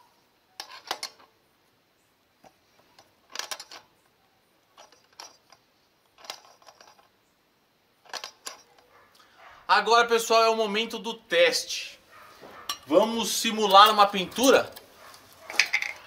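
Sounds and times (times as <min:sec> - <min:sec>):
metal parts clicking and rattling: 0:00.6 - 0:01.3, 0:02.4 - 0:04.1, 0:04.7 - 0:07.2, 0:08.0 - 0:08.9, 0:12.6 - 0:16.0.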